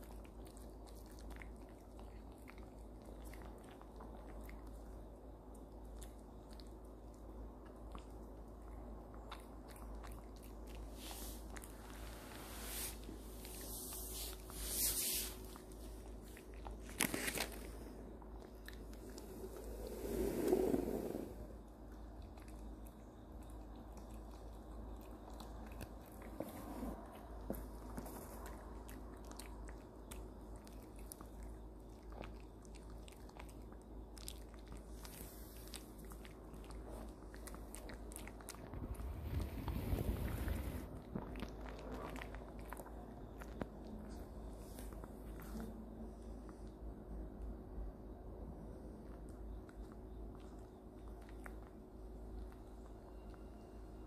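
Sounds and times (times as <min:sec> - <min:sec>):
dog chewing crunchy treat: 0:15.4 - 0:19.7, 0:21.6 - 0:39.5, 0:40.9 - 0:44.2.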